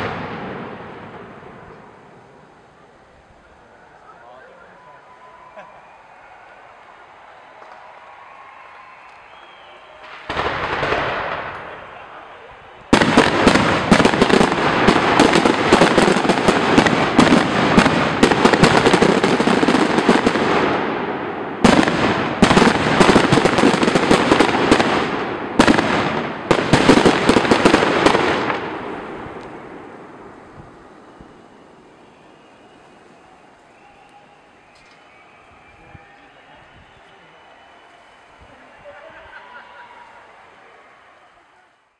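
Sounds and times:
fireworks bangs and crackles: 0.0s - 2.5s, 9.0s - 33.9s.

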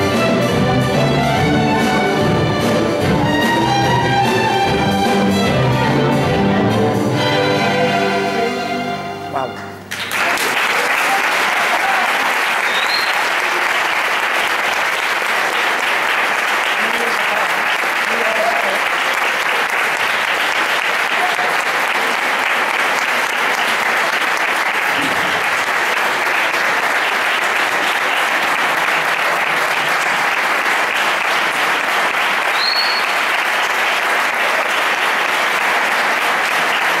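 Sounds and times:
audience applauding: 9.9s - 37.0s.

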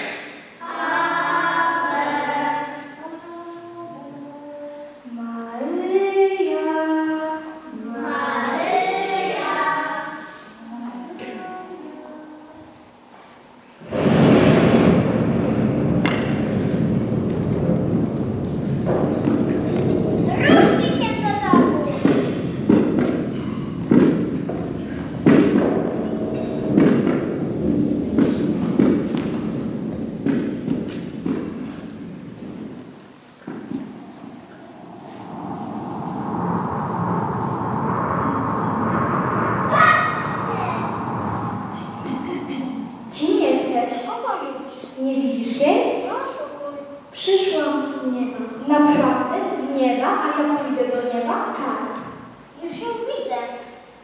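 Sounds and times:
young voices singing slowly: 0.0s - 12.8s.

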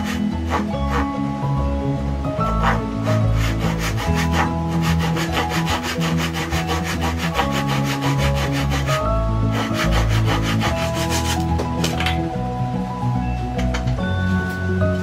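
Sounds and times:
hand saw cutting wood: 0.0s - 1.2s, 2.4s - 11.5s
background music: 0.0s - 15.0s.

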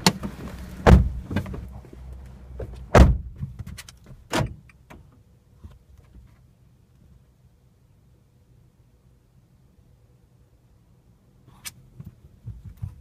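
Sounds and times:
loud thumps in car cabin: 0.0s - 1.7s, 2.6s - 3.7s, 12.4s - 13.0s.

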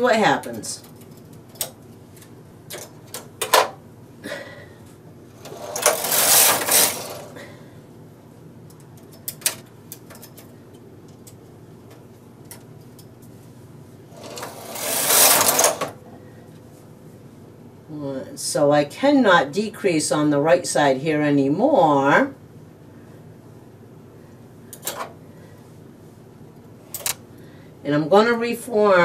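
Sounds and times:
knitting machine carriage rasping whir: 5.4s - 7.4s, 14.1s - 16.0s
latch needles clicking: 26.9s - 27.2s.

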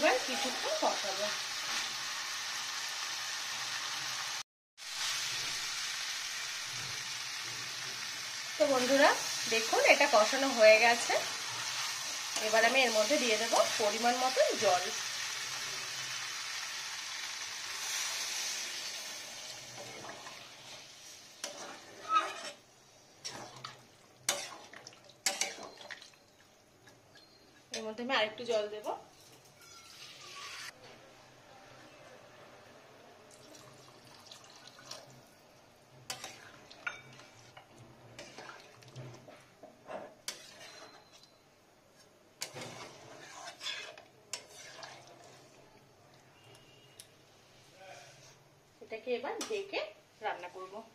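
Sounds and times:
water sizzling in hot pan: 0.0s - 26.4s, 29.5s - 30.8s, 33.3s - 35.4s, 36.0s - 39.3s
spatula scraping a pan: 17.8s - 22.6s, 23.2s - 26.0s, 29.1s - 30.8s, 36.1s - 41.3s, 41.9s - 45.6s, 48.0s - 48.4s
water poured into a pan: 33.3s - 35.3s.

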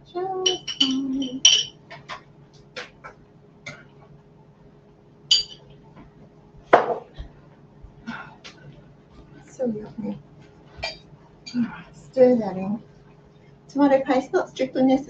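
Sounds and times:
clinks and taps on glass: 0.4s - 2.0s, 5.3s - 5.6s.

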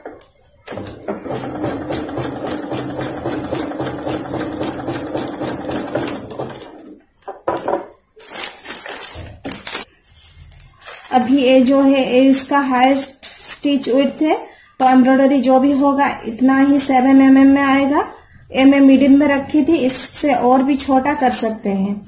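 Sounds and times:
sewing machine stitching zigzag: 0.7s - 7.0s.

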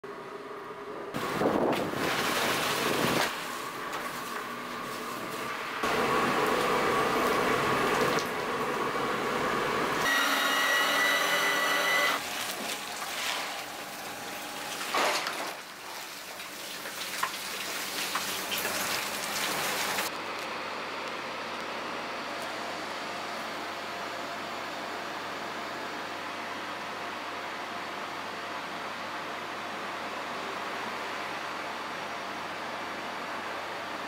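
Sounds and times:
machine whine: 5.1s - 15.1s.

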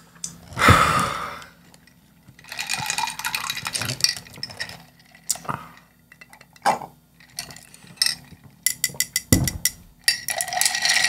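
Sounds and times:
ice cubes clinking in glass: 2.4s - 5.4s, 7.2s - 11.0s
straw rattling in glass: 2.4s - 5.5s, 7.2s - 11.0s.

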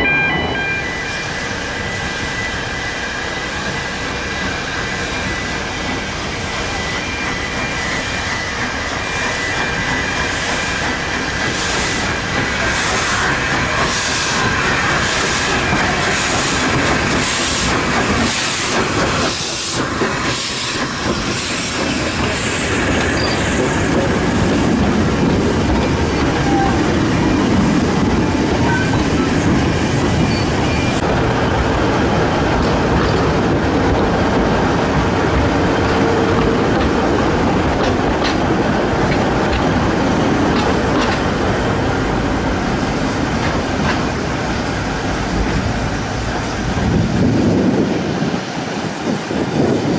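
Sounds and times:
steam locomotive exhaust beats: 0.0s - 49.9s
carriages rumbling and clattering: 21.0s - 48.4s.

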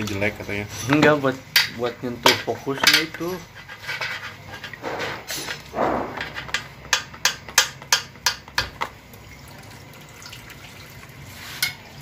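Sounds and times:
filter scraping: 2.7s - 6.6s.

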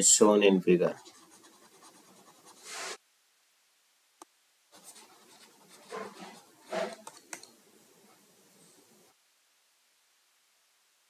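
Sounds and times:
stylus scratching on tablet: 0.8s - 3.0s, 4.8s - 7.4s.

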